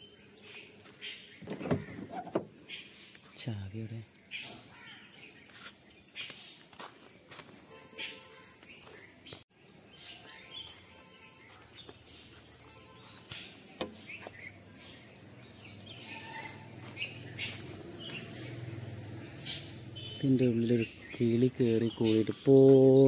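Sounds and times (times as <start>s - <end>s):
bird chirps: 7.5s - 23.0s.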